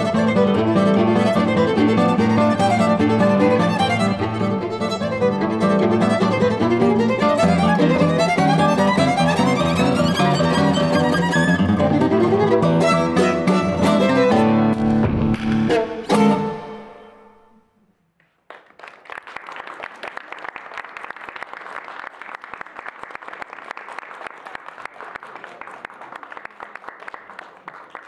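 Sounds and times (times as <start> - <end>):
classical guitar: 0.0 - 17.8
violin: 0.0 - 17.8
audience applauding: 18.3 - 28.0.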